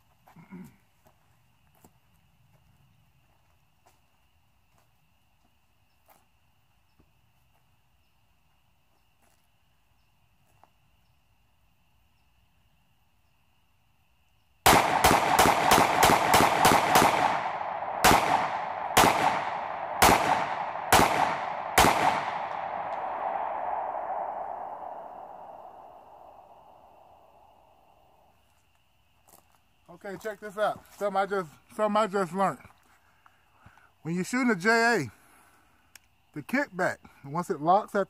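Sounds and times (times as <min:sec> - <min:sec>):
pistol shots: 0:14.6 - 0:25.6.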